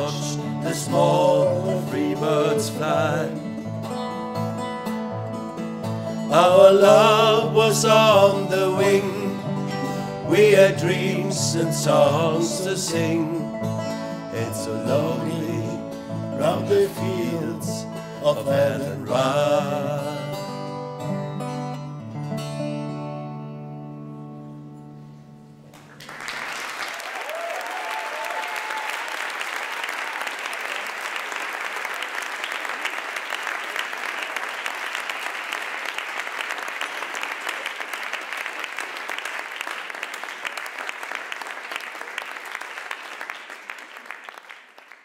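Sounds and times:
audience applause: 25.7 - 45.0.

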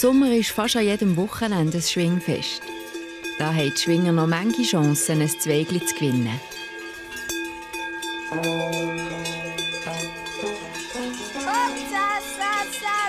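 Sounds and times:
cowbells clanging: 0.0 - 13.0
high rising and falling note: 8.3 - 11.5.

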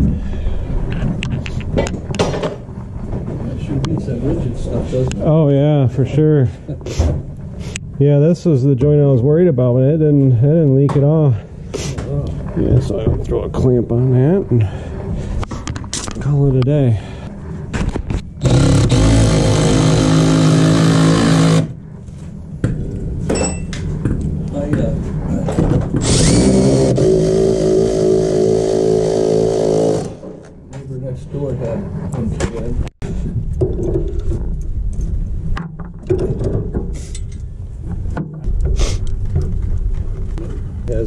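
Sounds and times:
impact driver hammering a screw: 17.8 - 21.7, 26.0 - 30.2.

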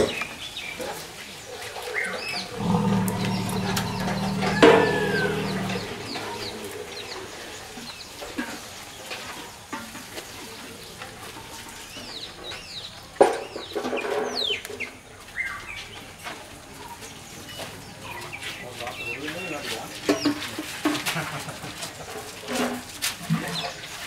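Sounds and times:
birds chirping: 2.5 - 7.2
harsh bird calling: 2.6 - 6.9.

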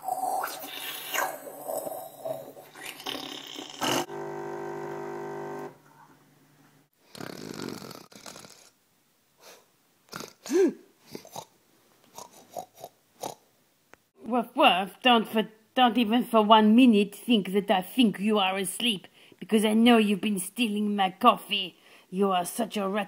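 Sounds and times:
person imitating snoring: 0.0 - 4.1, 7.1 - 8.8, 10.1 - 11.5.

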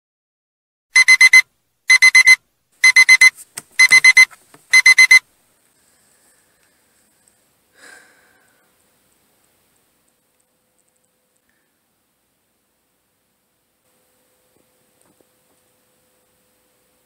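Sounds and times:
phone alarm beeping: 1.0 - 5.2.

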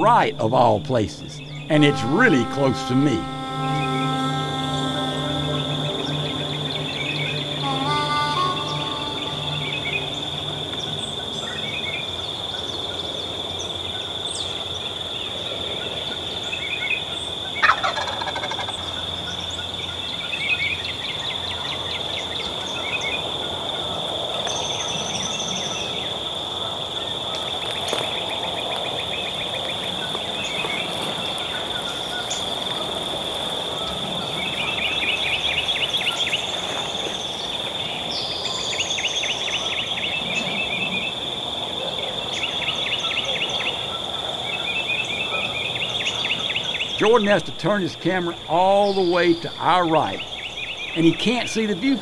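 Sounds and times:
songbird chirps and trills: 0.0 - 26.2, 27.0 - 52.0
insects droning: 0.0 - 52.0
turkey gobbling: 17.6 - 18.7.

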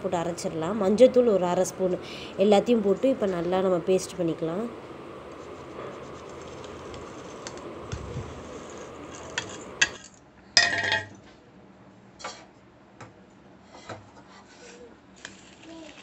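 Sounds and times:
ringing metal clank: 10.6 - 11.2.

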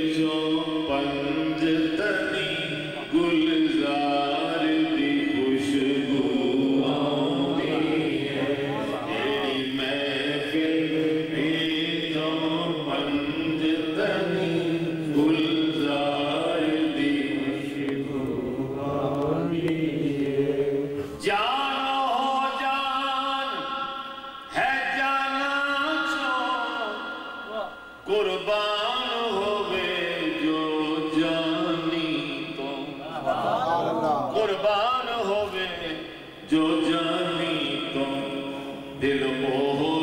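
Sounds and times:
man singing alone: 0.0 - 20.4, 21.0 - 33.0, 34.3 - 40.0
men chanting in unison: 0.0 - 40.0.

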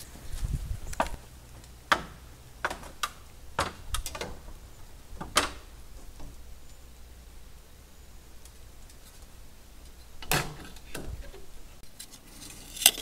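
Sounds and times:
metal trim clicking and knocking: 0.9 - 6.8, 10.2 - 11.6.

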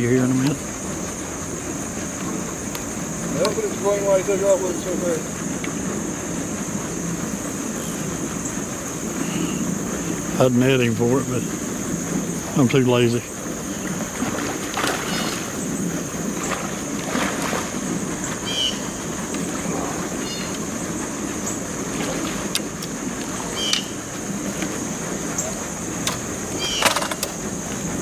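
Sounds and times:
fish splashing and thrashing in water: 13.4 - 28.0
high-pitched insect buzz: 13.6 - 17.6.

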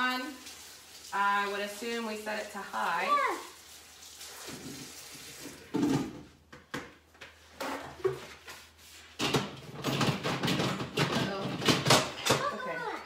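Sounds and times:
clattering and rustling: 4.4 - 12.6
kitchen knocks and clunks: 5.6 - 8.5, 9.2 - 12.7.

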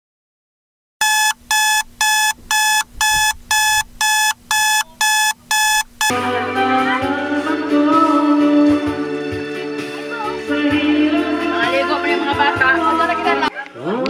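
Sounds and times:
buzzy electronic countdown beeps: 1.0 - 6.1
music: 6.1 - 14.0.

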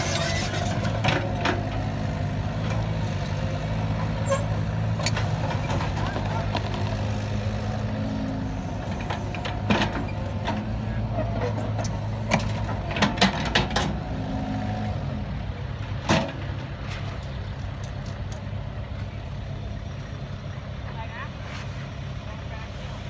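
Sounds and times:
excavator diesel engine running: 0.0 - 23.0.

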